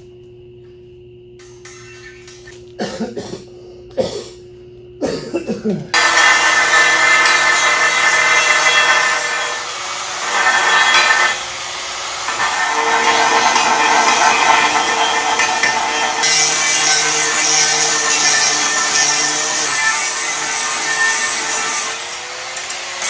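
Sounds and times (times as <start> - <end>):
film projector rattling whir: 12.3 - 20.2.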